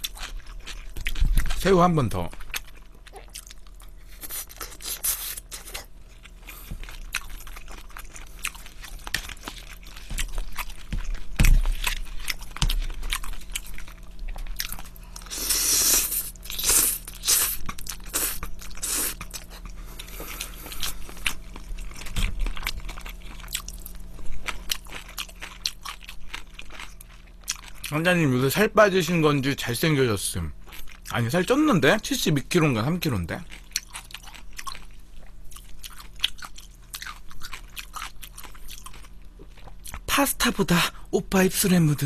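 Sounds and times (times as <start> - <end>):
crunching and chewing: 0.0 - 28.1, 30.6 - 31.6, 32.3 - 40.1
slurping noodles: 15.3 - 19.2.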